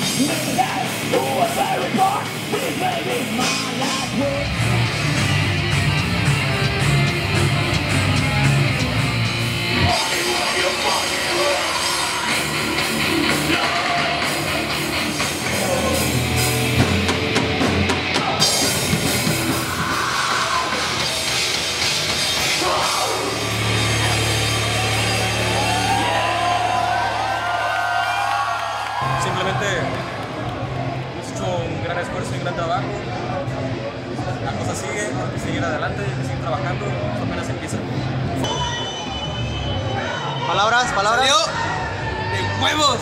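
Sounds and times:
heavy rock band playing: 0.0s - 27.9s.

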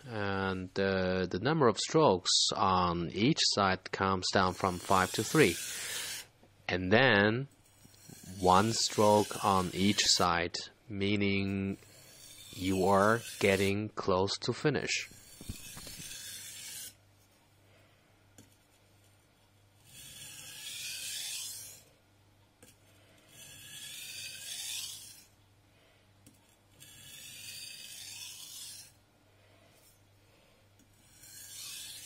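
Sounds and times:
knife scraping on whetstone: 4.4s - 6.3s, 7.6s - 10.4s, 11.6s - 13.8s, 15.1s - 17.0s, 19.8s - 21.9s, 22.6s - 25.3s, 26.4s - 29.0s, 30.9s - 32.0s.

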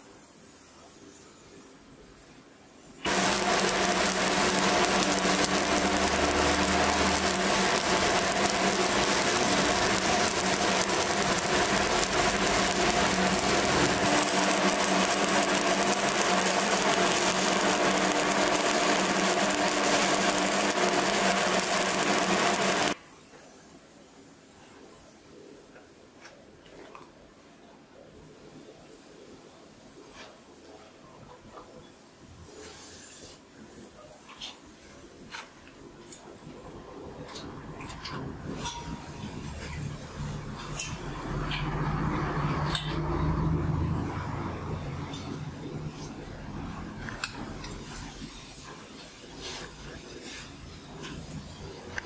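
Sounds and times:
welding arc crackling sizzle: 3.0s - 23.0s, 36.1s - 52.0s.

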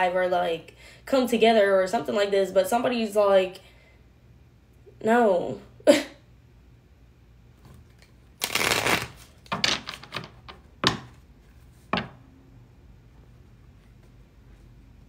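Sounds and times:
cards rustling: 7.8s - 10.4s
cards riffle shuffling: 8.4s - 10.3s.

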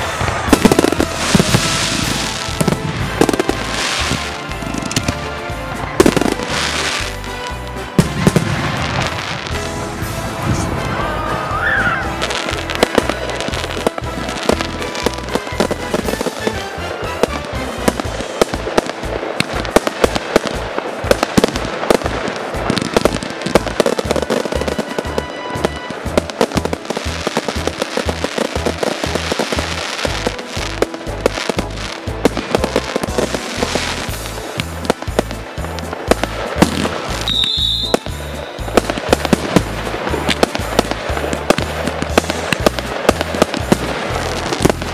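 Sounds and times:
fireworks bursting and crackling: 0.0s - 44.9s.

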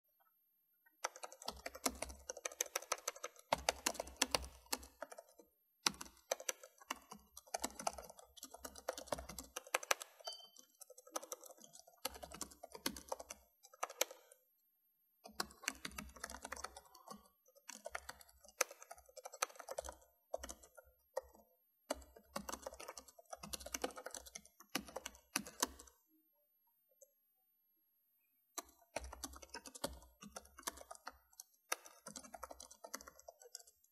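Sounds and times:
typing on keyboard: 1.0s - 14.4s, 15.2s - 26.0s, 28.6s - 33.9s.

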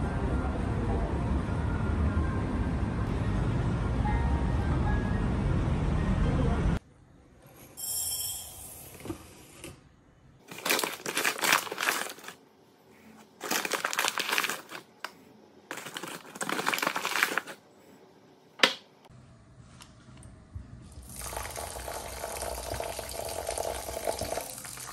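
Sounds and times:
grains pouring into glass bowl: 21.0s - 24.9s.

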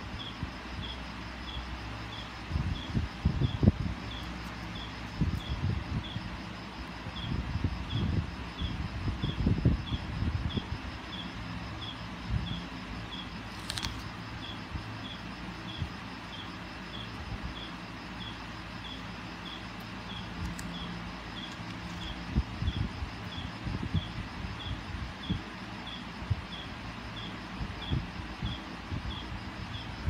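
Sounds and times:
background hiss and hum: 0.0s - 30.0s
hands rustling paper: 13.5s - 14.1s.

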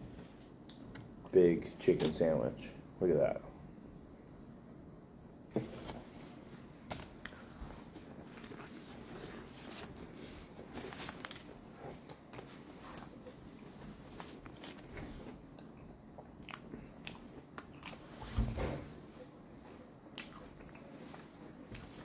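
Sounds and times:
person chewing crunchy food: 15.4s - 18.2s, 20.1s - 21.0s.

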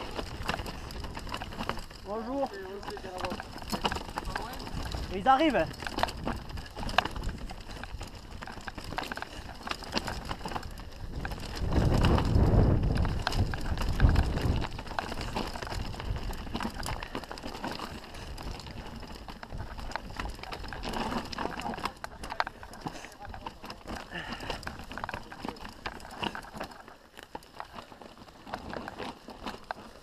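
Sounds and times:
wind rumble on microphone: 0.0s - 22.7s
bike chain and frame rattling: 0.0s - 30.0s
bike tyres rolling over stones: 0.0s - 30.0s.

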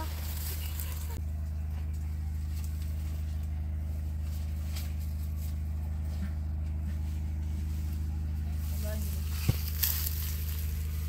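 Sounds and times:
faint rustles: 0.0s - 11.0s
low mechanical hum: 0.0s - 11.0s.

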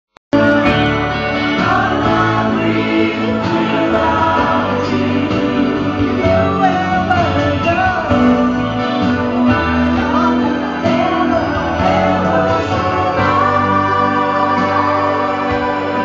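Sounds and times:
woman singing into microphone: 9.6s - 16.0s.

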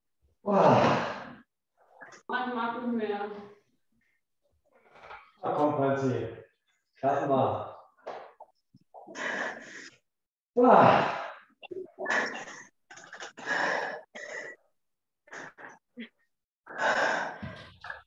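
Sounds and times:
person gasping heavy breaths: 16.7s - 17.8s.

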